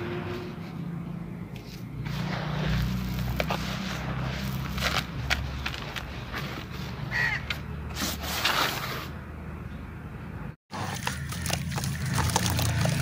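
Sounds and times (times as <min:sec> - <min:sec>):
hand crumbling dry cement mix: 0:02.0 - 0:06.8, 0:10.8 - 0:13.0
water sloshing: 0:10.8 - 0:13.0
cement crackling in water: 0:10.9 - 0:13.0.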